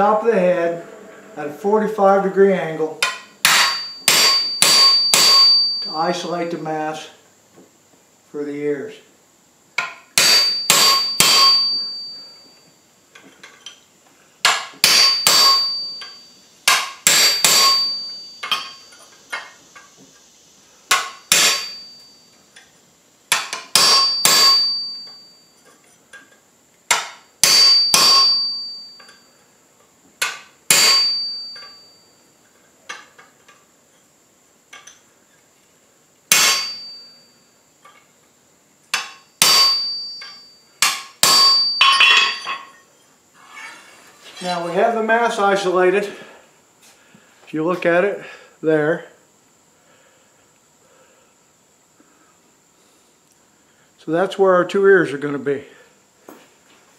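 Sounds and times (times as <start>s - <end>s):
hammer blows ringing on steel: 3.0s - 6.0s, 9.8s - 12.4s, 14.5s - 18.9s, 20.9s - 22.0s, 23.3s - 25.3s, 26.9s - 29.2s, 30.2s - 31.9s, 36.3s - 37.2s, 39.0s - 42.7s.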